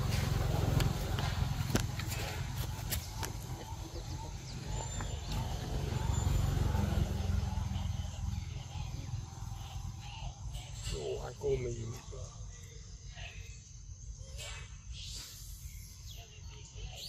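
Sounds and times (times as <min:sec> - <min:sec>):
faint high chirps: 0:03.2 - 0:17.0.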